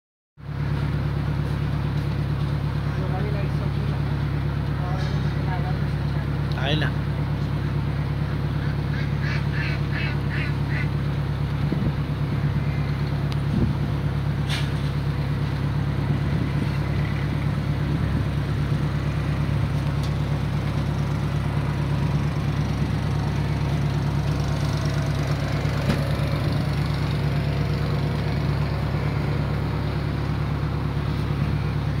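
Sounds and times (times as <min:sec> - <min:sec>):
boat engine droning: 0:00.4 - 0:32.0
ducks quacking: 0:07.6 - 0:11.0.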